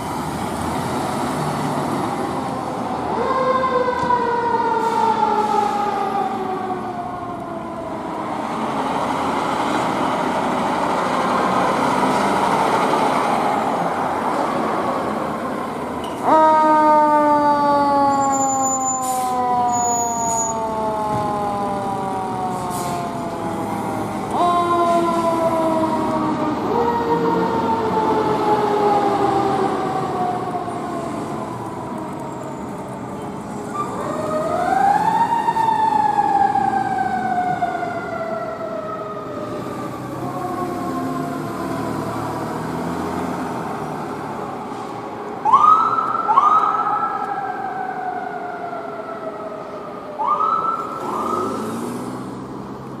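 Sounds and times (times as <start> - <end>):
vehicle engines: 0.0 - 53.0
siren whoops: 3.0 - 8.1, 16.2 - 32.5, 33.7 - 41.6, 45.4 - 51.8
siren winding down: 16.2 - 32.3, 45.5 - 52.0.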